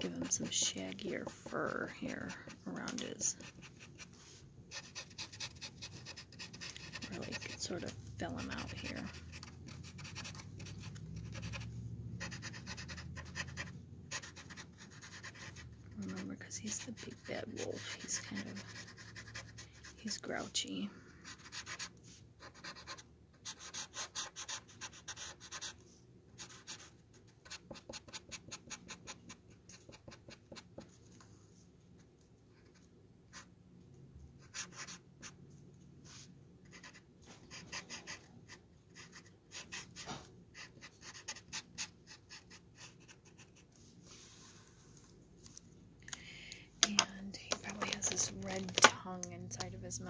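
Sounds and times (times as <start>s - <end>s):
marker scratching on wood: 0.1s - 20.2s, 21.2s - 25.8s, 26.4s - 31.0s, 36.1s - 43.6s.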